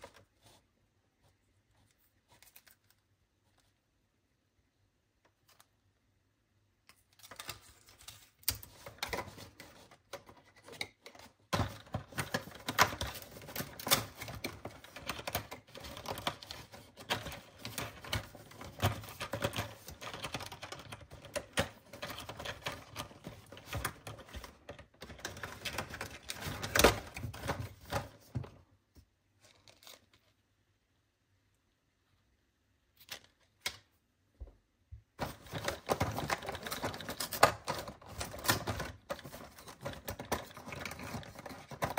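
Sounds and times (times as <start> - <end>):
plastic crackling: 6.9 - 28.6, 35.2 - 41.9
fingers tapping and tearing cardboard: 8.4 - 28.6.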